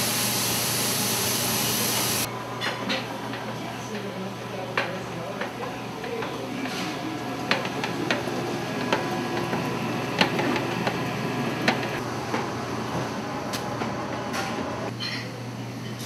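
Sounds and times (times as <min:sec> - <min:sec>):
machine hum: 0:05.8 - 0:14.9.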